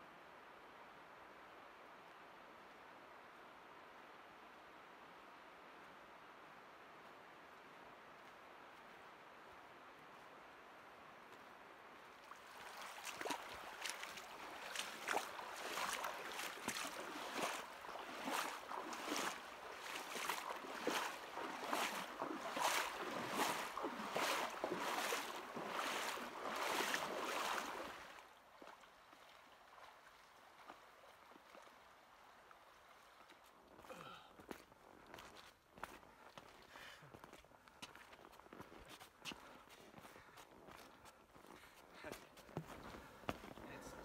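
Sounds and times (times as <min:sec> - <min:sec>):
person splashing through water: 0:12.2 - 0:29.9.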